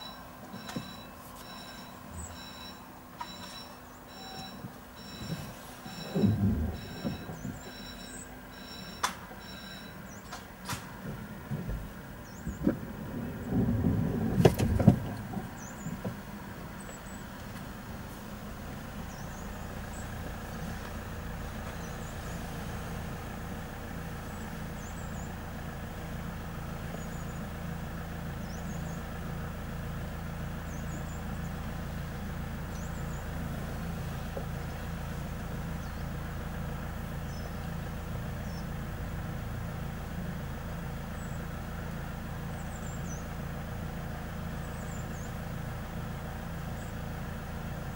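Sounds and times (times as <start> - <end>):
vehicle engine idling: 0.0 - 47.9
loud knocks: 5.2 - 7.8
bird chirps: 19.1 - 20.7, 21.7 - 22.4.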